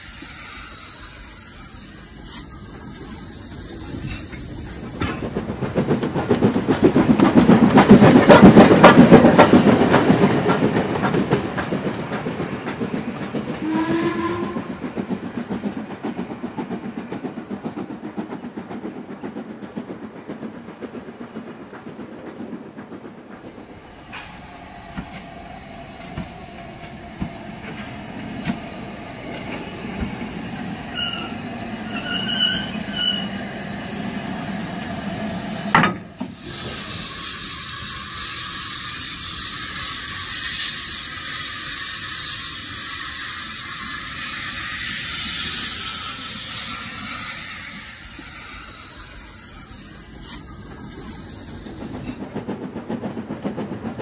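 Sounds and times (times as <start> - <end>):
faint locomotive hum: 0.0 - 54.0
model train whistle: 13.6 - 14.7.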